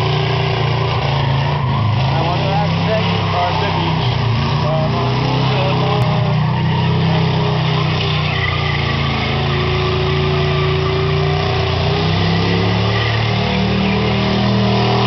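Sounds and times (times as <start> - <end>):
car engine revving: 0.0 - 15.0
tyres spinning with hiss and squeal: 0.0 - 15.0.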